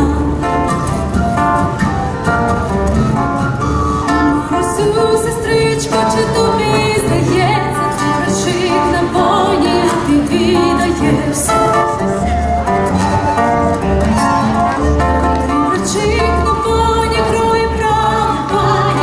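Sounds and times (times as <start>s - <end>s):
woman singing with vibrato: 0.0s - 1.0s, 4.1s - 12.7s, 15.4s - 19.0s
nylon-string acoustic guitar: 0.0s - 19.0s
upright bass: 9.3s - 19.0s.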